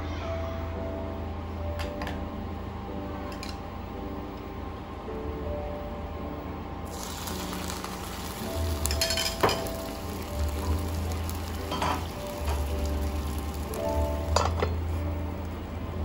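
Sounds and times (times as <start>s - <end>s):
background music: 0.0s - 16.0s
water sizzling in frying pan: 6.9s - 14.9s.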